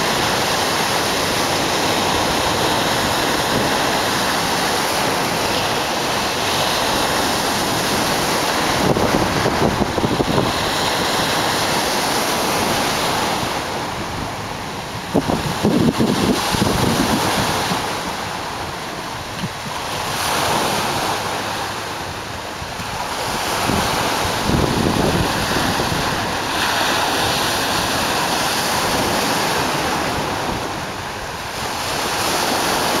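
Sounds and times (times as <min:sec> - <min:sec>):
waves breaking on rocks: 0:00.0 - 0:33.0
wind buffeting microphone: 0:00.0 - 0:33.0.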